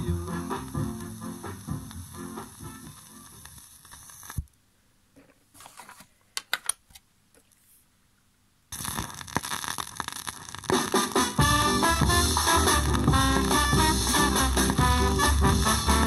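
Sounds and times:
ska music from a record: 0.0 - 4.3, 8.8 - 16.0.

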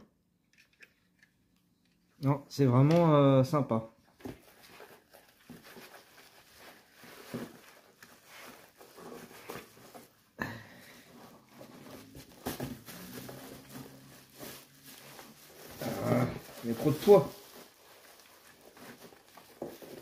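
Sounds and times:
bubble wrap crinkling: 4.2 - 10.4, 11.0 - 20.0.

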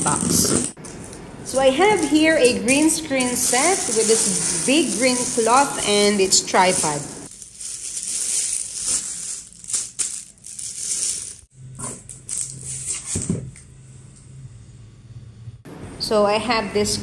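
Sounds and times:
plastic wrapping crinkling: 0.8 - 11.5.

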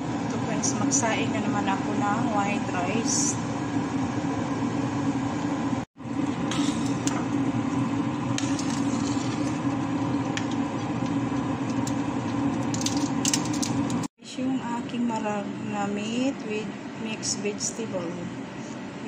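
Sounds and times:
kitchen hum: 0.0 - 14.1.

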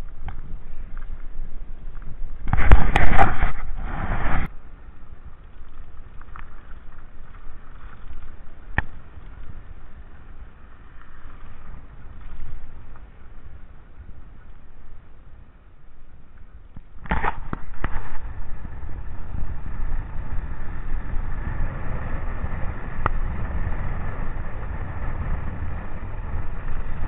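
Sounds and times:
bike tyres rumbling on gravel: 0.0 - 27.0.

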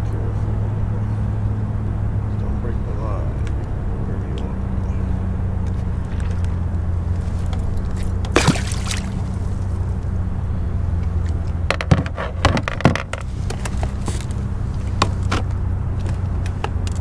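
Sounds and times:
steady low hum: 0.0 - 17.0
water splashing against camera: 7.2 - 9.8.

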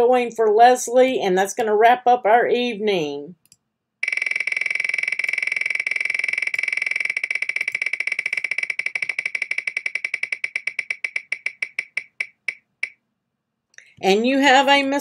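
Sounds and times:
prize wheel ticking: 4.0 - 13.0.

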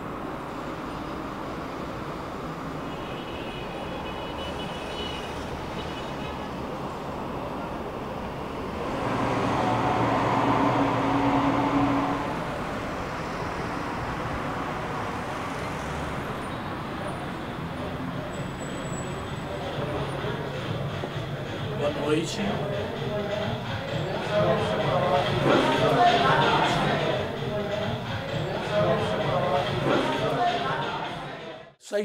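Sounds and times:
city traffic hum: 0.0 - 31.8
vehicle engine passing: 6.6 - 31.4.

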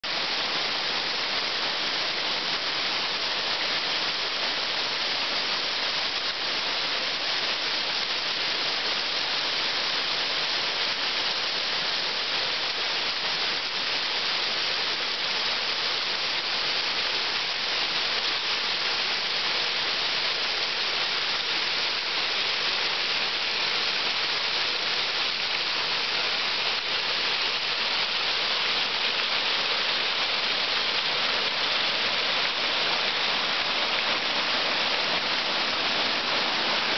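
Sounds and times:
water rushing over rock ledges: 0.0 - 36.9.

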